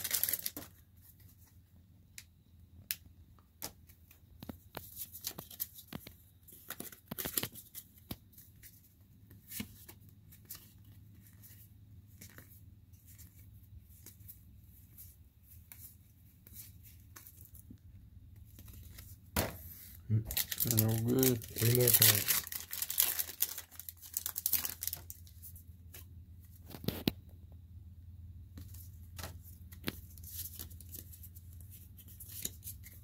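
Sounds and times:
trading cards flipped by hand: 0:03.6 - 0:17.7, 0:28.6 - 0:33.0.

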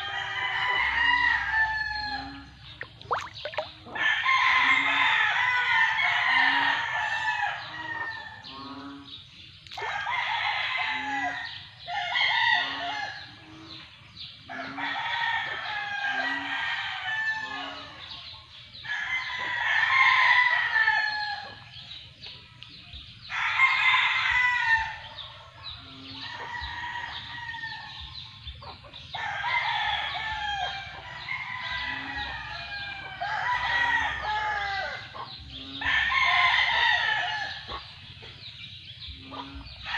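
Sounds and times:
roosters crowing: 0:00.0 - 0:02.7, 0:29.1 - 0:38.0.

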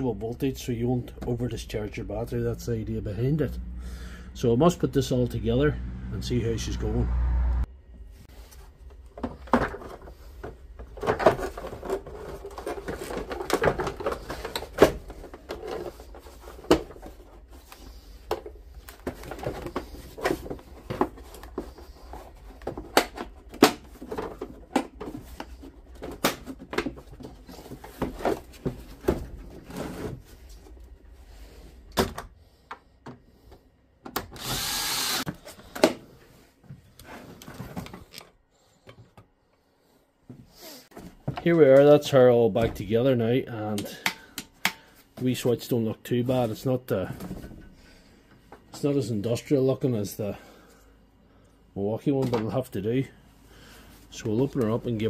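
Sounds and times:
plastic parts clicking and rattling: 0:08.9 - 0:30.0.

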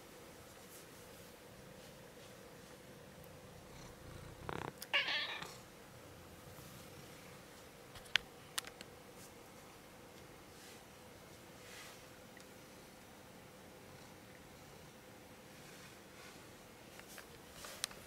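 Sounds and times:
cat meowing: 0:04.9 - 0:05.6.

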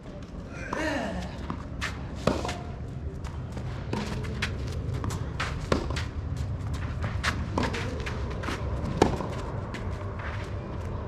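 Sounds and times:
racket hitting tennis ball: 0:02.2 - 0:02.7, 0:03.9 - 0:06.0, 0:08.5 - 0:09.4.

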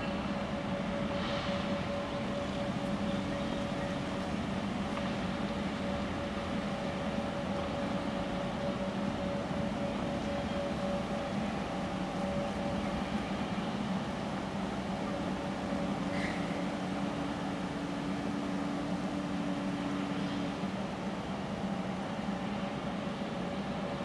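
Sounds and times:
diesel locomotive engine running: 0:00.0 - 0:24.0.

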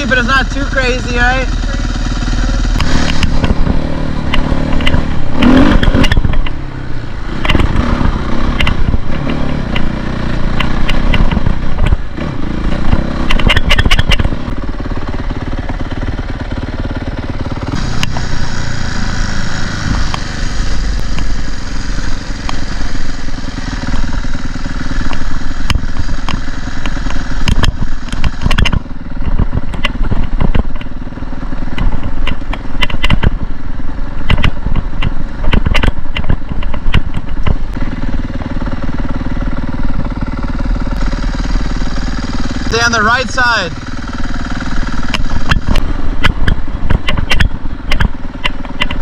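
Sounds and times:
dirt bike engine revving: 0:00.0 - 0:29.1, 0:37.8 - 0:48.3
sharp knocks and clatters: 0:02.8 - 0:06.6, 0:10.6 - 0:12.0, 0:12.7 - 0:14.5, 0:31.7 - 0:33.4, 0:34.2 - 0:37.8, 0:45.0 - 0:49.0.

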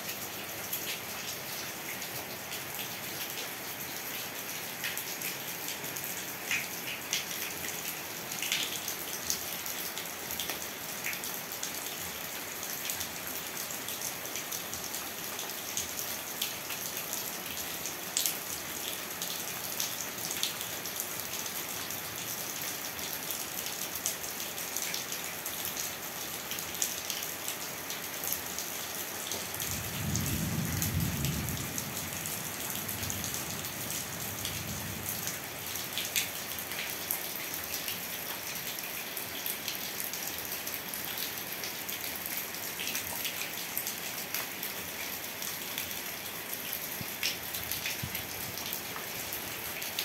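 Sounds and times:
heavy rain splashing: 0:28.3 - 0:38.0.

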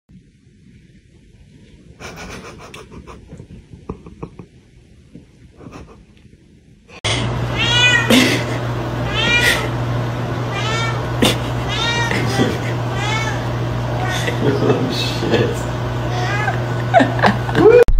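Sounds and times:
steady low hum: 0:00.1 - 0:17.9
cat meowing loudly: 0:07.5 - 0:08.2, 0:09.0 - 0:09.7, 0:10.5 - 0:14.2.

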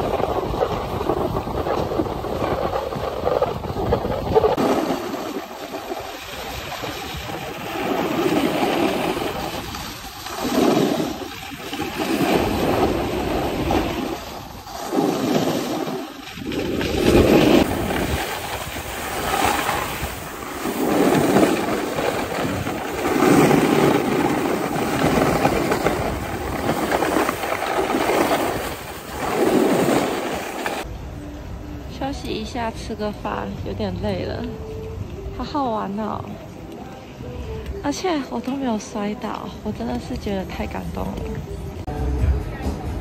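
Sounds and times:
ski edges scraping on snow: 0:00.0 - 0:30.9
wind rushing over microphone: 0:00.0 - 0:43.0.

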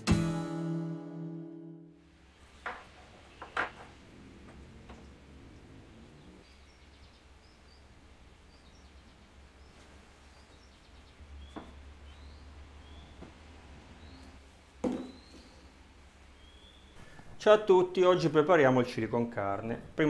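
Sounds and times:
bowls knocking on wooden table: 0:02.6 - 0:05.1, 0:14.8 - 0:15.5
faint bird chirps: 0:04.9 - 0:13.3, 0:15.0 - 0:17.2.

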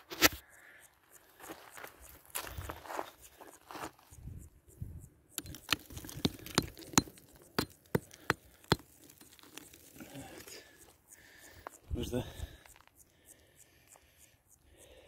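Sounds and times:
rock hammer clinking on rock: 0:05.4 - 0:10.0.

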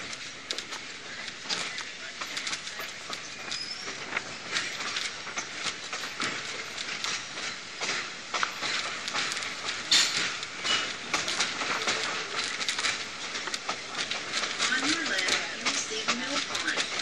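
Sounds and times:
train wheels rolling on track: 0:00.0 - 0:17.0
wheel clicks and clanks: 0:00.0 - 0:17.0
short high wheel squeal: 0:03.5 - 0:04.0.

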